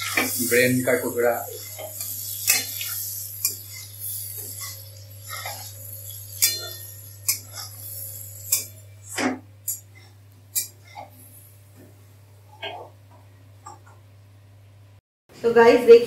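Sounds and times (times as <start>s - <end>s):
spatula scraping pan: 0.0s - 11.2s.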